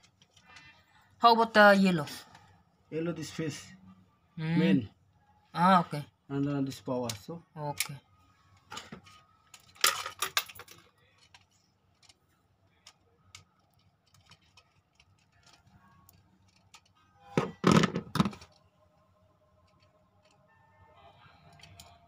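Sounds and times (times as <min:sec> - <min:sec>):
clatter of knocks: 0:17.4 - 0:18.5.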